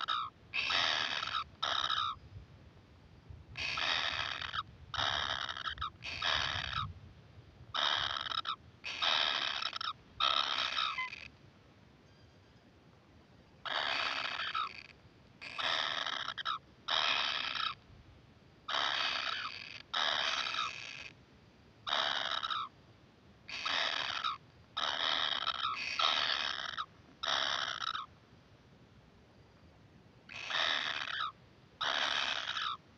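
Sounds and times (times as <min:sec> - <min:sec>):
nestlings rasping begging calls: 0:00.0 - 0:02.2, 0:03.6 - 0:06.9, 0:07.8 - 0:11.3, 0:13.7 - 0:17.8, 0:18.7 - 0:21.1, 0:21.9 - 0:22.7, 0:23.5 - 0:28.1, 0:30.3 - 0:32.8.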